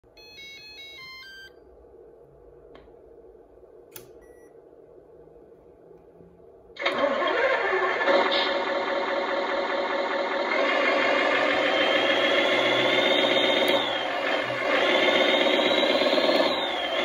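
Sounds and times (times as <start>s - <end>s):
faint hum: 0.0s - 17.0s
clicks: 3.9s - 4.2s
simulated diesel engine idling: 6.8s - 17.0s
electronic beeps: 11.4s - 17.0s.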